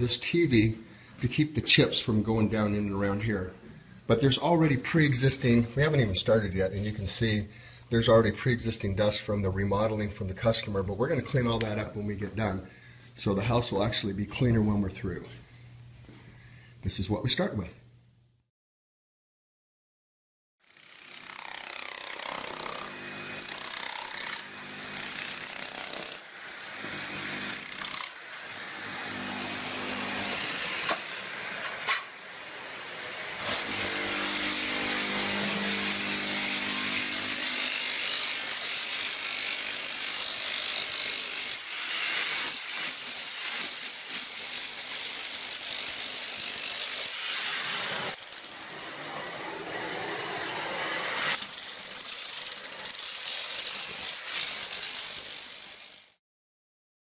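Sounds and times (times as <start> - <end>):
electric chipping hammer on tile: 20.6 - 32.1, 33.3 - 56.2.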